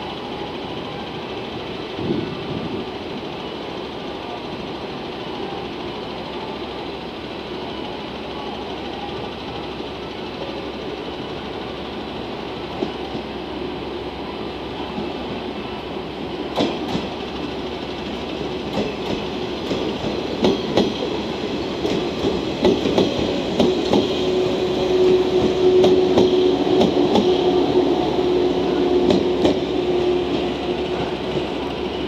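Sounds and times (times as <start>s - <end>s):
train hum: 0.0s - 32.0s
train wheels clicking over rail joints: 16.5s - 31.8s.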